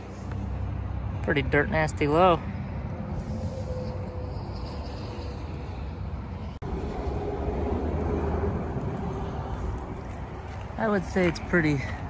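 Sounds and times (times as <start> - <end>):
outdoor low rumble: 0.0 - 12.0.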